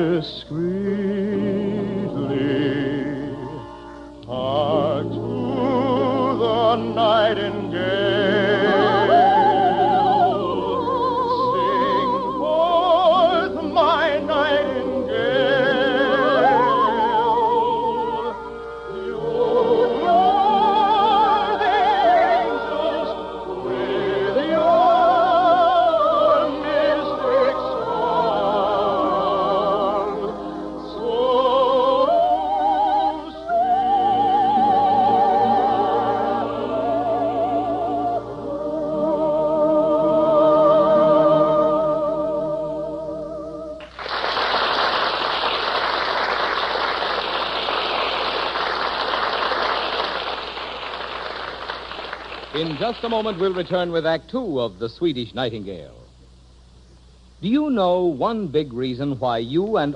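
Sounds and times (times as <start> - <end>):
soprano singing operatically: 0.0 - 43.8.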